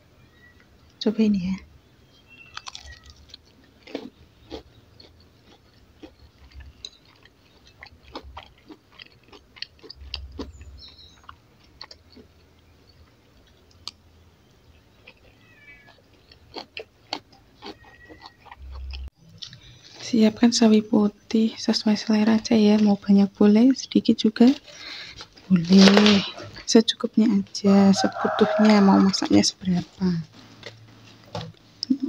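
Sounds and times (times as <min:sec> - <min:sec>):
person chewing: 0:02.4 - 0:20.0, 0:28.0 - 0:32.0.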